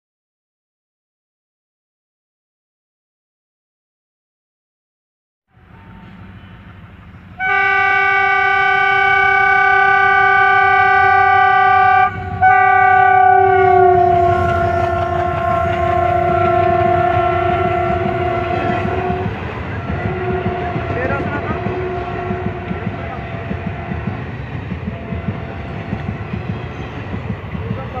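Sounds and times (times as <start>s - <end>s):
train coaches rumbling past: 5.5s - 28.0s
locomotive horn blasts: 7.4s - 24.2s
wheels clicking over rail joints: 14.0s - 28.0s.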